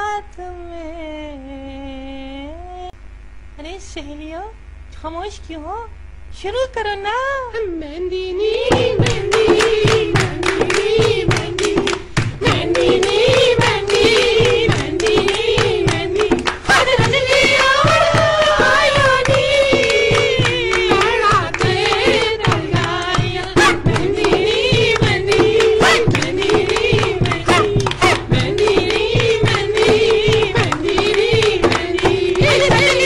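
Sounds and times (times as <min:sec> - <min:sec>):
group of voices singing: 0:08.0 - 0:33.0
hand percussion beat: 0:08.7 - 0:33.0.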